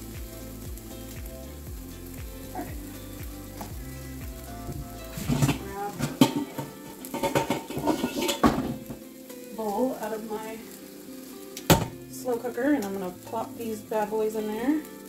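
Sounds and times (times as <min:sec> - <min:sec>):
meatballs sizzling in a frying pan: 0:00.0 - 0:15.0
pots and dishes clattering: 0:05.1 - 0:09.1, 0:11.7 - 0:12.0.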